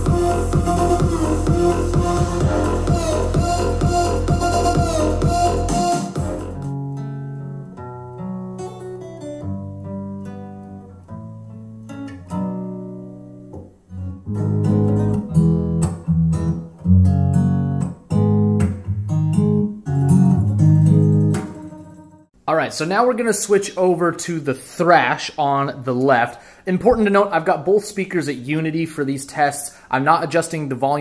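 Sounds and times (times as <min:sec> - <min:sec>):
acoustic guitar piece: 0:06.2 - 0:22.4.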